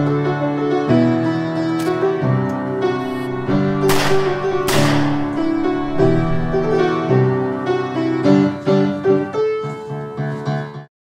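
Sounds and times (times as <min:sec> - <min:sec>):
keyboard background music: 0:00.0 - 0:10.2
short crash-like noise bursts: 0:03.0 - 0:07.6.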